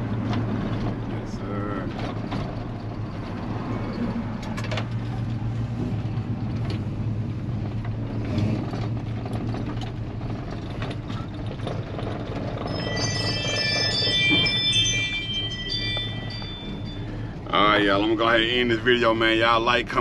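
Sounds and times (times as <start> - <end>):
truck engine and exhaust droning: 0.0 - 20.0
chime-like music: 12.6 - 18.6.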